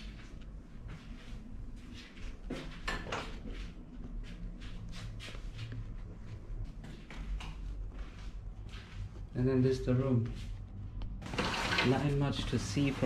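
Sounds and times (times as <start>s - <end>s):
low rumble: 3.7s - 13.0s.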